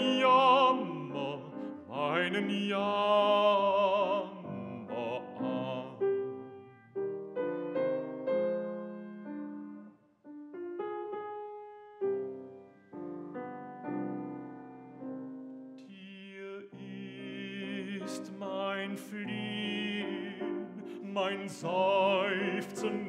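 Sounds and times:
man singing classical: 0.0s - 10.0s, 15.8s - 23.0s
piano playing held chords: 0.0s - 16.1s, 16.9s - 23.0s.

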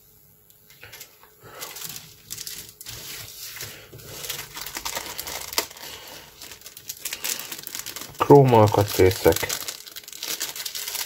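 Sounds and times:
plastic bag crinkling: 0.8s - 11.0s.

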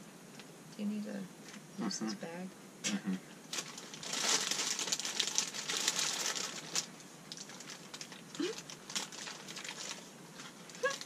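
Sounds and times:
paper bag crinkling: 3.5s - 11.0s.

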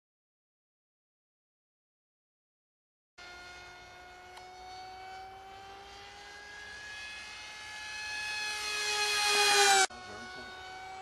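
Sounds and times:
model plane electric motor whining: 3.2s - 11.0s.

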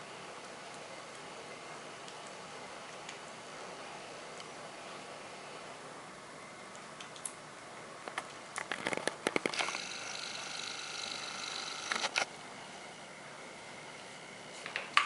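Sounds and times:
steady high whine: 9.4s - 14.6s.

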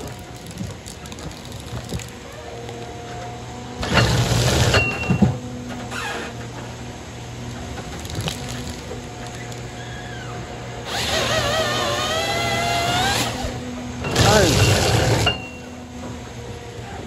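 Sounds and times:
log feeding rushing and crackling: 0.0s - 3.4s, 7.5s - 10.1s
harvester engine running: 0.0s - 17.0s
chainsaw cutting log: 3.8s - 4.9s, 10.8s - 15.4s.

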